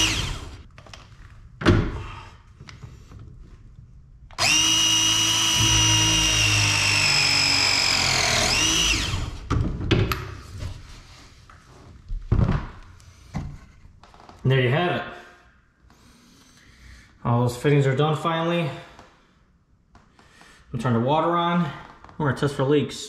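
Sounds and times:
press tool motor whining: 0.0 - 0.6, 4.3 - 9.5.

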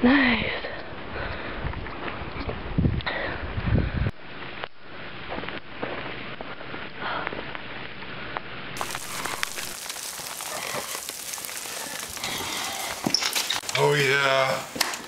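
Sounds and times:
background noise: 0.0 - 15.0
footsteps crunching through snow: 8.8 - 14.2.

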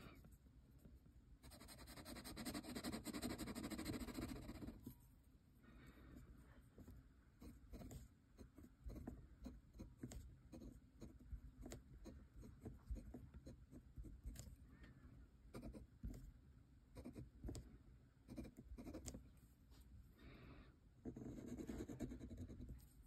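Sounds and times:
pen nib scratching on paper: 1.4 - 5.0, 7.4 - 14.5, 17.0 - 17.7, 18.3 - 19.2, 21.0 - 22.9.

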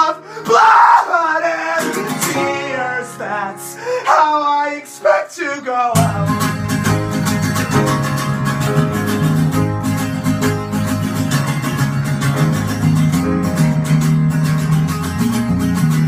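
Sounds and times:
guitars strumming quickly: 1.5 - 3.1, 5.9 - 16.0
bass notes: 6.0 - 16.0.

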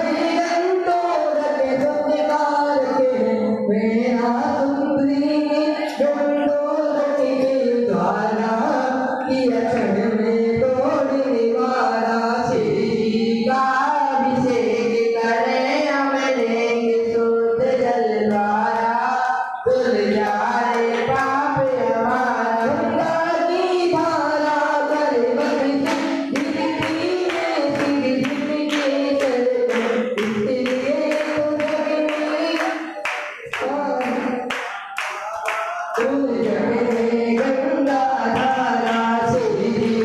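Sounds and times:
rhythmic hand-clapping: 0.0 - 3.3, 4.2 - 11.2, 17.6 - 40.0
group singing devotional chant: 0.0 - 40.0.

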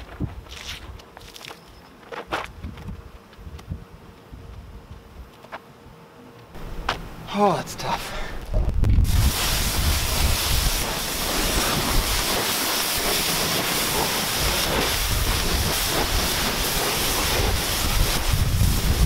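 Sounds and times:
water spraying on a car: 9.1 - 19.0.

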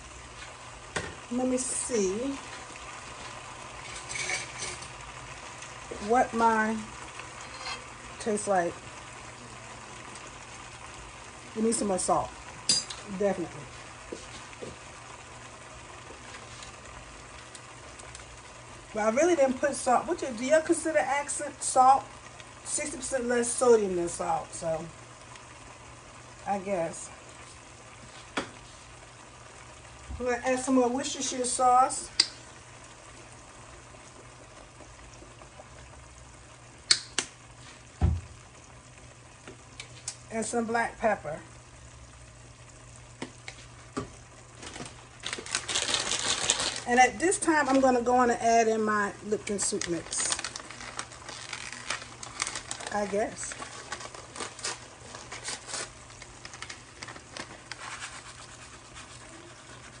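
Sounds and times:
low steady hum: 0.0 - 60.0
pot simmering: 0.0 - 60.0
dull thump: 38.0 - 38.4
paper packet rustling: 44.6 - 46.9, 49.4 - 59.2.

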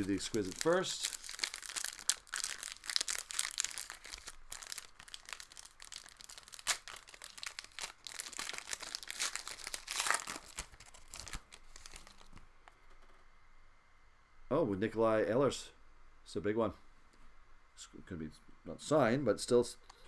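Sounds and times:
foil wrapper crinkling and tearing: 0.0 - 12.4.

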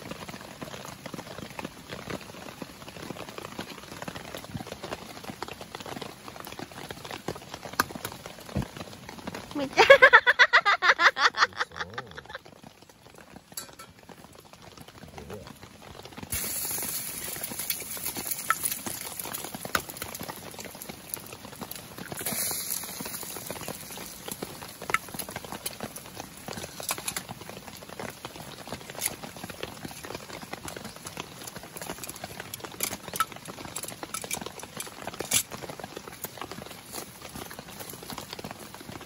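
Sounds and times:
burning logs crackling: 0.0 - 39.0
eggs sizzling in a skillet: 13.4 - 14.2, 16.1 - 38.9.

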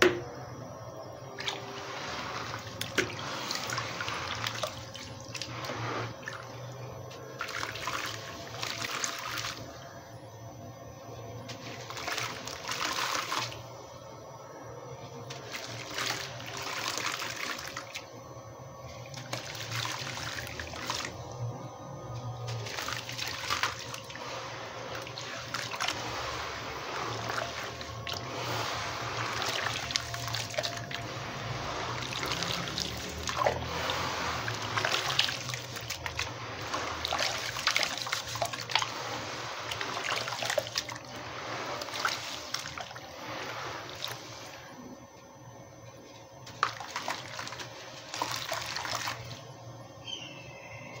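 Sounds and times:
grit splashing into water: 11.5 - 13.7, 22.5 - 44.7, 46.4 - 49.4.

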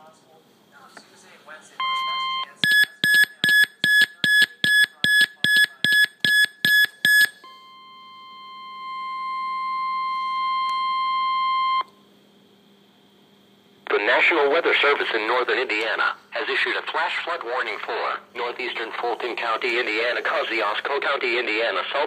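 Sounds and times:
weather radio beeping rapidly: 1.8 - 7.3, 17.8 - 22.0.

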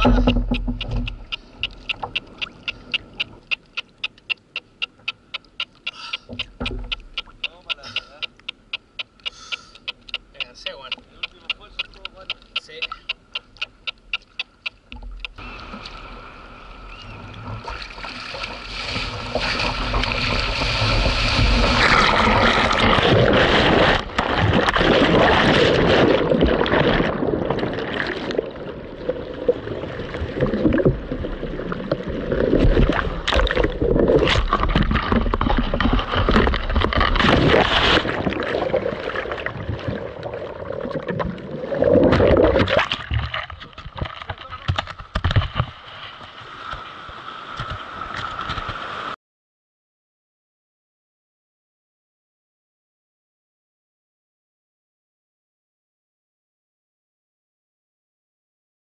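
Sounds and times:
quick ticks: 0.0 - 15.4
surf rushing and splashing: 15.4 - 49.2
sharp water splashes: 17.6 - 44.7.

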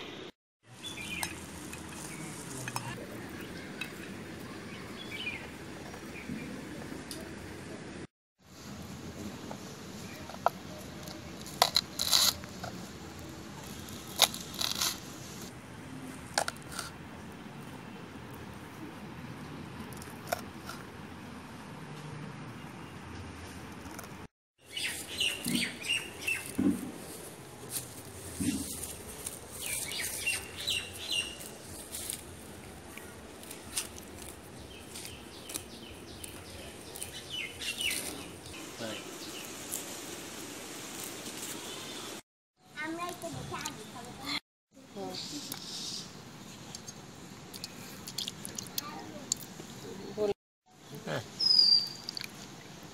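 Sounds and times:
small birds chirping: 0.7 - 6.6, 24.6 - 27.2, 28.1 - 39.9, 45.0 - 50.1, 51.2 - 52.3.

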